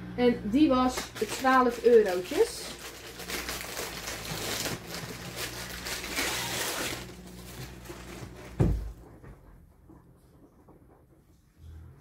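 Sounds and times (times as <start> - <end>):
plastic packaging crinkling: 0.8 - 8.6
dull thump: 8.5 - 9.4.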